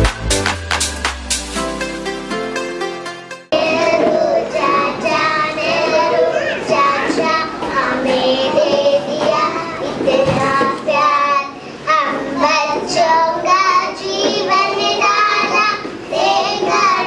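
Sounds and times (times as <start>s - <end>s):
children singing into a microphone: 3.5s - 17.0s.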